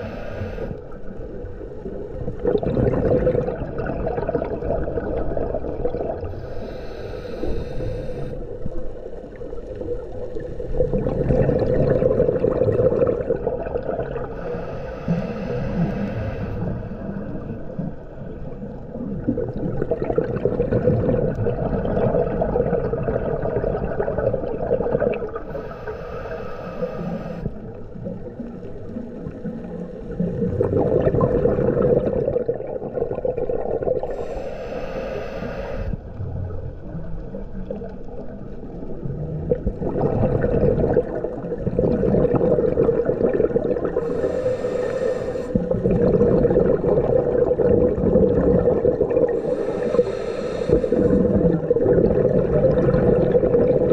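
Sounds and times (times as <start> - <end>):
diver breathing through regulator: 0.0 - 1.0, 6.2 - 9.0, 14.1 - 18.0, 25.4 - 27.8, 34.0 - 36.0, 43.8 - 46.4, 49.2 - 51.7
exhaled bubbles bursting: 1.3 - 6.4, 8.6 - 14.4, 17.4 - 25.6, 27.5 - 34.2, 36.9 - 44.3, 45.5 - 50.0, 50.9 - 53.9.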